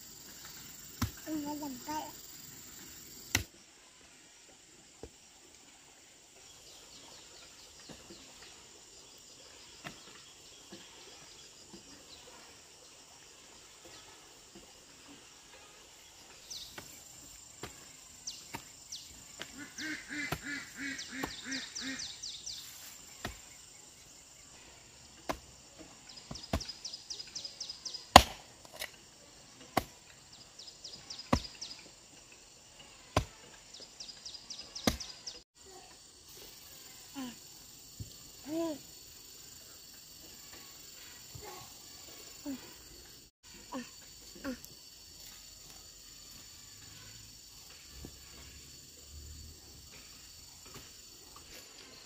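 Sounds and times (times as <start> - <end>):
insects chirping: 0.0 - 52.0
sharp chopping strikes: 3.3 - 3.5, 21.2 - 21.5, 25.3 - 25.5, 28.1 - 28.9, 29.8 - 30.0, 31.3 - 31.5, 33.2 - 33.4, 34.8 - 35.2.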